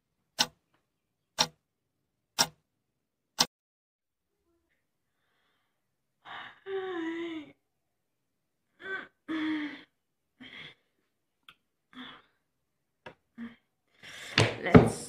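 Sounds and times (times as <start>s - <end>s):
woman sighing: 6.2s - 7.6s.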